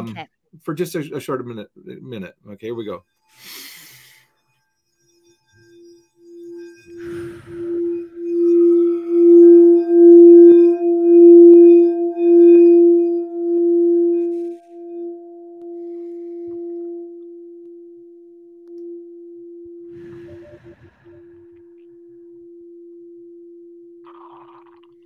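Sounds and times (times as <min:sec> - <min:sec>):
singing bowl tone: 0:03.4 - 0:24.8.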